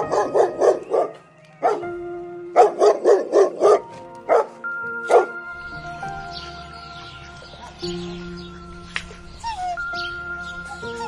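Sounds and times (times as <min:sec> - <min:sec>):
dog barking: 0:00.0 - 0:01.8, 0:02.6 - 0:05.4
background music: 0:00.0 - 0:11.0.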